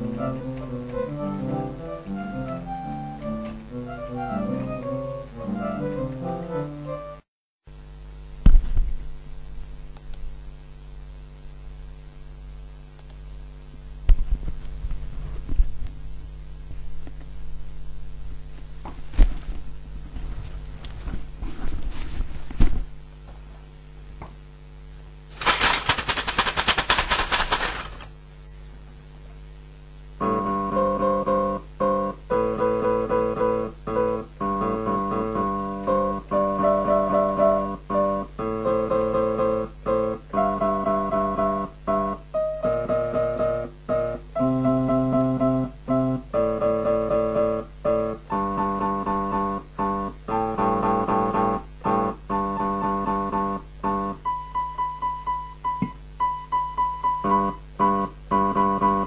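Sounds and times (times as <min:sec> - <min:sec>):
repeated keyboard notes: 0:00.0 - 0:07.2
rapid rattling clicks: 0:25.3 - 0:28.1
scattered clicks and knocks: 0:25.3 - 0:28.1.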